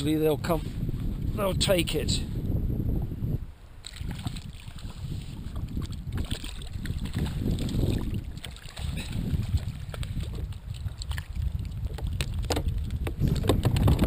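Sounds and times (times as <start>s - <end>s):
wind buffeting microphone: 0.0s - 14.0s
water slopping against kayak: 3.8s - 14.0s.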